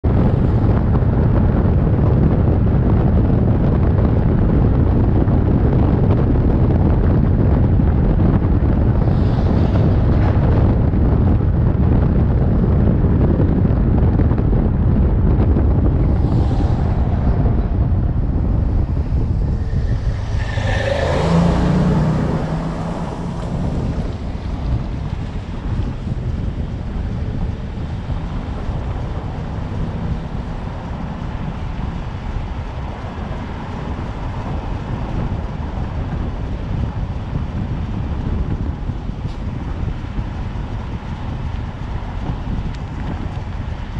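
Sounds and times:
road and engine rumble: 0.0 - 43.9
wind buffeting microphone: 0.0 - 43.9.

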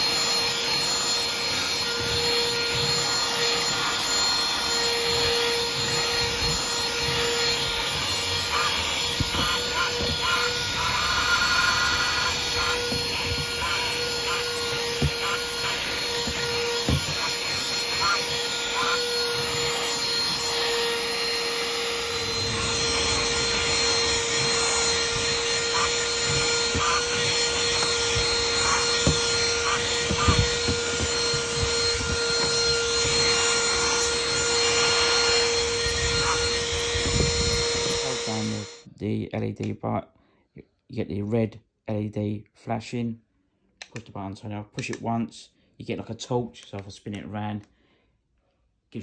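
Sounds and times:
handheld vacuum whine: 0.0 - 38.9
nozzle rubbing on carpet mat: 0.3 - 37.3.

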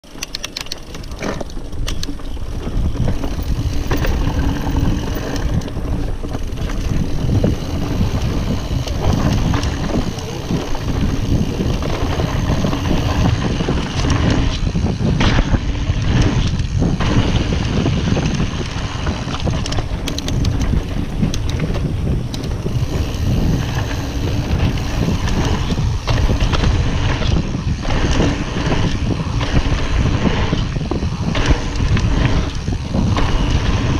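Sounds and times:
bike rattling over bumps: 0.0 - 33.9
tyres rumbling over dirt: 0.0 - 33.9
wind buffeting microphone: 0.2 - 33.9.

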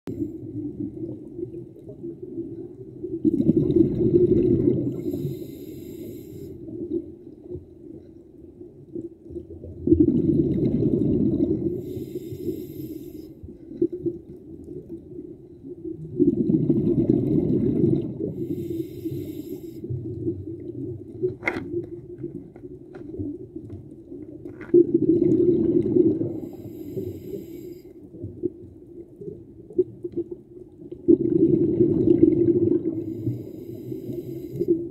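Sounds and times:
exhaled bubbles rushing: 0.3 - 5.2, 9.6 - 12.0, 15.8 - 18.6, 24.8 - 26.7, 29.8 - 33.5.

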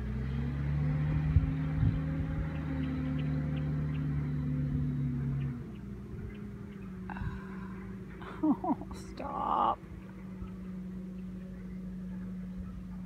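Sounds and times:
engine running: 0.0 - 13.0
wind rumble on microphone: 0.3 - 7.7.

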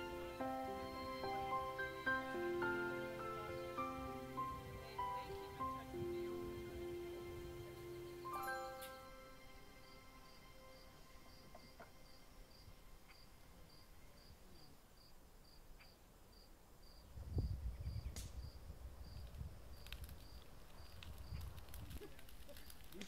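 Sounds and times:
cricket chirping: 7.2 - 22.8.

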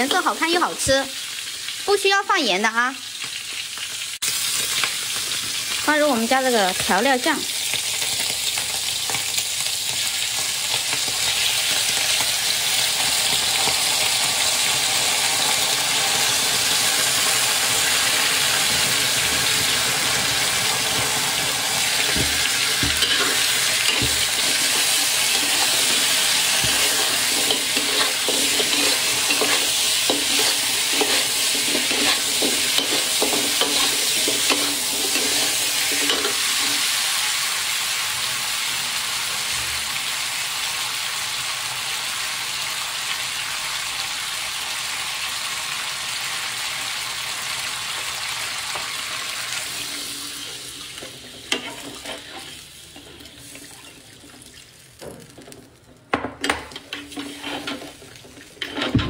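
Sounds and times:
meat sizzling in hot oil: 0.0 - 59.0
spatula scraping and knocking wok: 18.6 - 37.0, 49.7 - 59.0.

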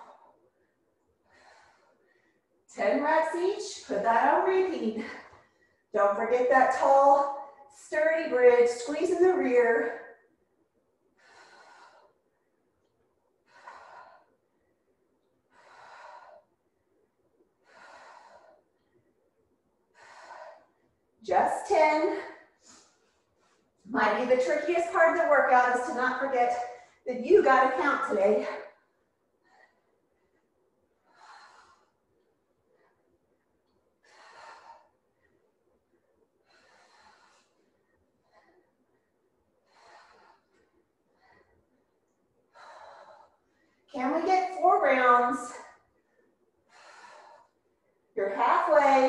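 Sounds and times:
woman breathing with exertion: 0.0 - 4.4, 11.1 - 23.9, 27.8 - 49.0.

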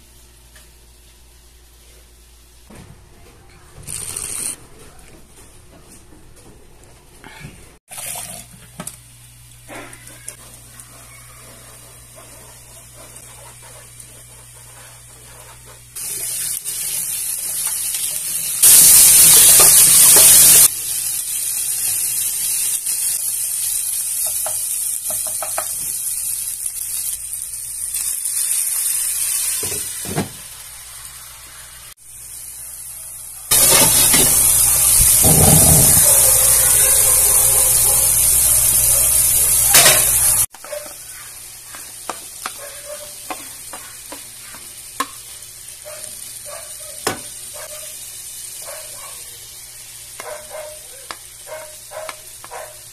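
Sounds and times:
meat sizzling in frying pan: 16.0 - 52.9.

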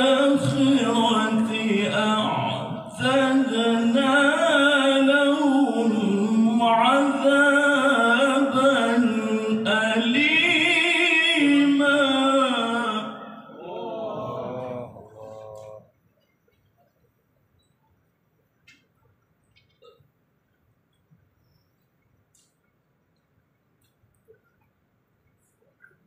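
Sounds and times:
man chanting through loudspeaker: 0.0 - 15.9.

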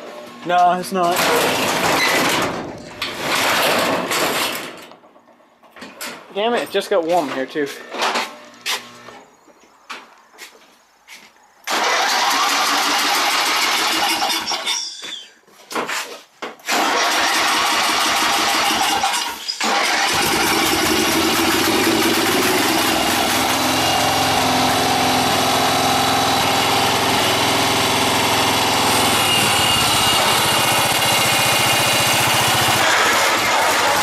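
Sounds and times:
lawn mower engine cranking: 0.7 - 5.1, 11.7 - 14.9, 16.6 - 34.0
lawn mower engine running: 11.7 - 14.6, 16.7 - 34.0.

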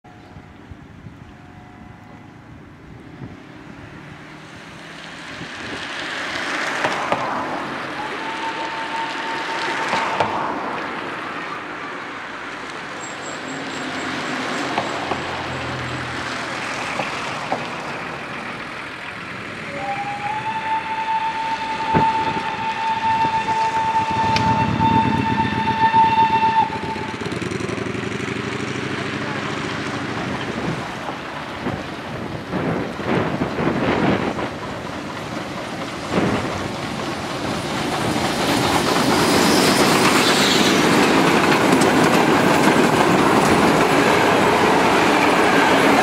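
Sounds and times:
steam whistle blast: 8.0 - 10.5, 19.7 - 27.6
steam locomotive chuffing: 12.9 - 46.0.

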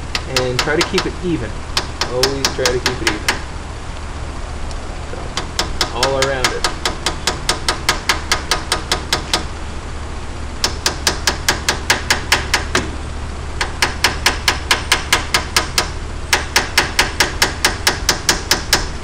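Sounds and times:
hammer tapping on metal bearing: 0.0 - 1.2, 1.8 - 3.5, 5.3 - 9.5, 10.6 - 13.0, 13.6 - 19.0.

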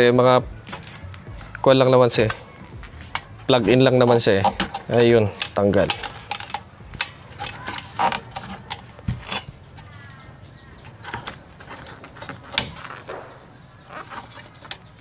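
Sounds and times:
clicks and knocks of hands working: 2.2 - 13.3, 13.9 - 15.0.

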